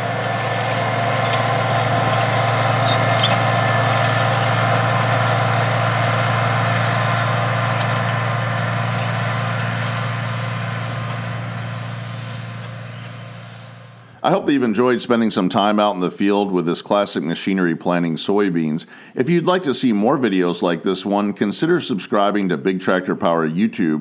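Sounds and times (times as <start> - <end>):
tractor diesel engine under load: 0.0 - 15.8.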